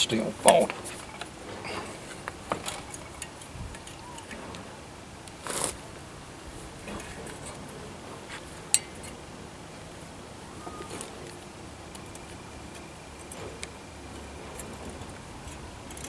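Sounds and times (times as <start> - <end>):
lockwire clicking and ticking: 11.1 - 16.0.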